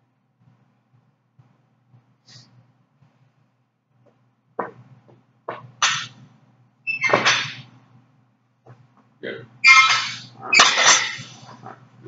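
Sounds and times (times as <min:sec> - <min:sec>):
barbell clanking and rattling: 0:05.8 - 0:06.2, 0:07.1 - 0:07.7, 0:09.7 - 0:11.7.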